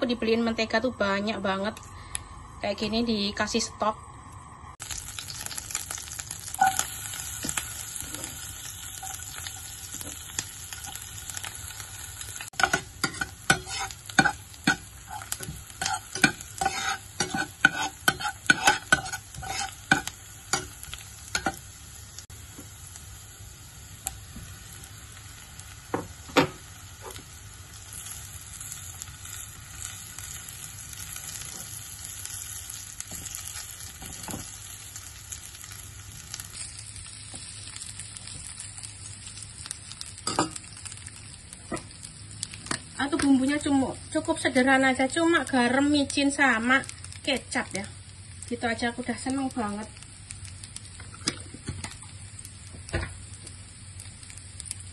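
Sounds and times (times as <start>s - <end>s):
butter sizzling in a frying pan: 4.8s - 54.9s
metal spatula scraping pan: 12.6s - 20.7s.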